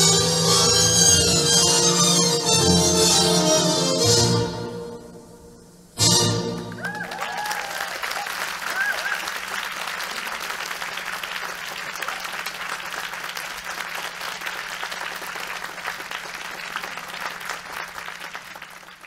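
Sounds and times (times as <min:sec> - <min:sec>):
audience applauding: 0:06.5 - 0:19.0.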